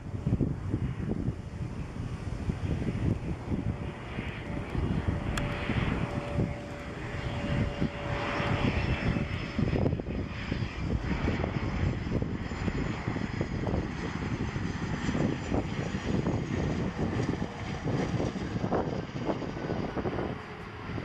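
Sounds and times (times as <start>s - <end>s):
jet engine rumble: 0.0s - 21.0s
jet engine whine: 0.0s - 21.0s.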